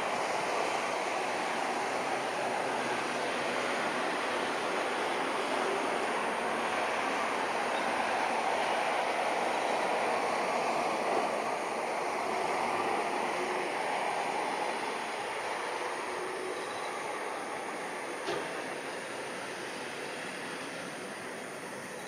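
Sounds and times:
distant jet engine roar: 0:00.0 - 0:22.0.

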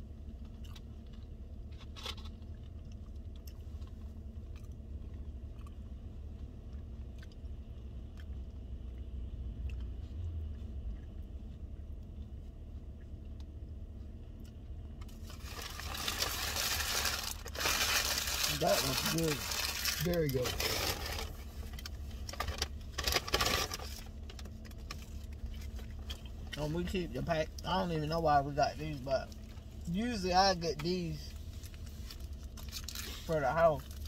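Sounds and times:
low hum inside car: 0:00.0 - 0:34.0
person chewing food: 0:00.2 - 0:18.4
food packaging rustling: 0:15.1 - 0:25.9.

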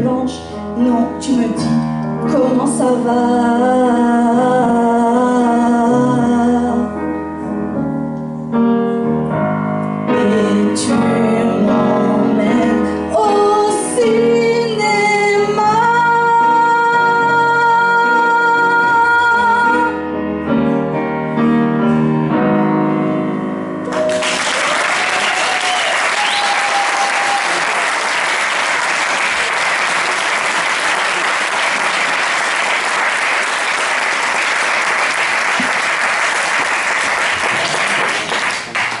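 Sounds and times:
grand piano chords: 0:00.0 - 0:24.4
audience cheer: 0:23.9 - 0:34.5
audience applause: 0:23.9 - 0:39.0.

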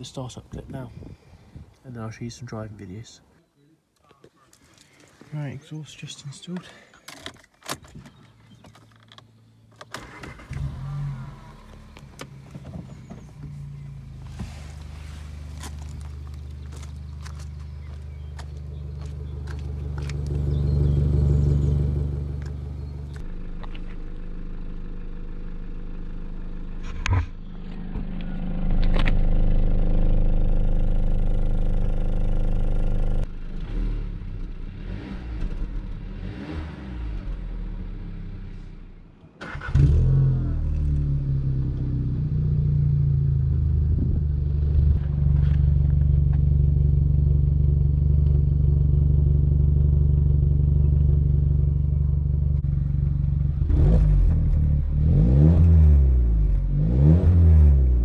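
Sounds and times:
car exhaust: 0:09.5 - 0:58.0
engine starting: 0:09.8 - 0:11.6, 0:39.4 - 0:40.3.

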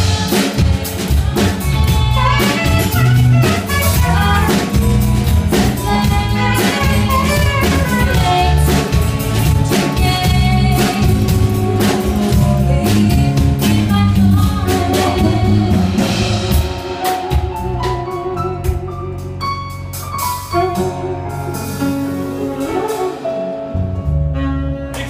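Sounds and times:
woman singing: 0:00.0 - 0:16.4
alto saxophone: 0:00.0 - 0:25.0
drum kit: 0:00.0 - 0:25.0
live band playing: 0:00.0 - 0:25.0.

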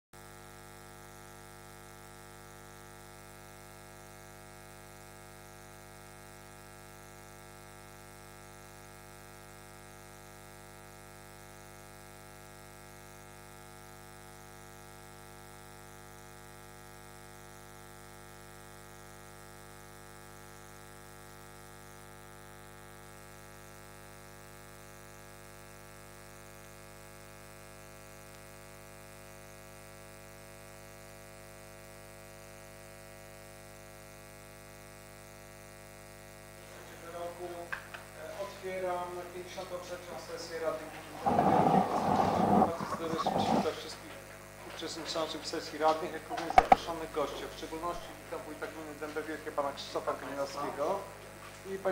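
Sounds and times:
electrical mains hum: 0:35.0 - 0:51.9.

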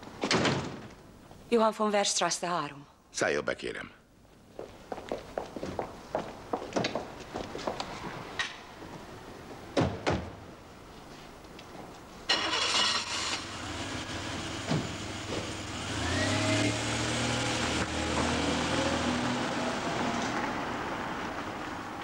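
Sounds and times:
car engine starting and running: 0:12.3 - 0:22.0.

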